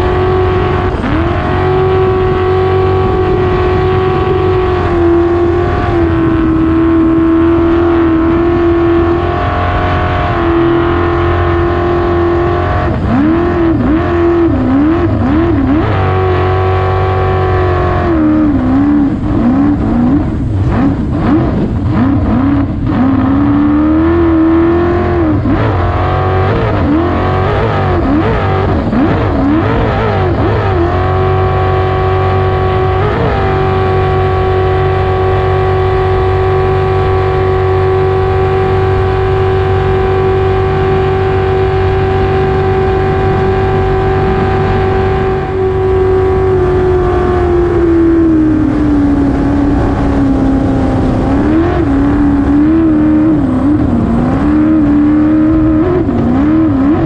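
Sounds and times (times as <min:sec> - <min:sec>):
jet boat engine running hard: 0:00.0 - 0:57.0.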